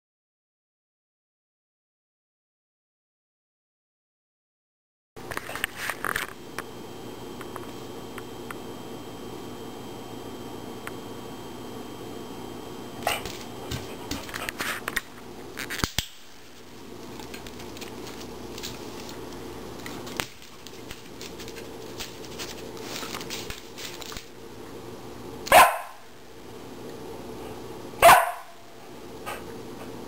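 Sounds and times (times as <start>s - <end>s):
dog barking: 13.0s - 13.3s, 25.5s - 26.0s, 28.0s - 28.6s.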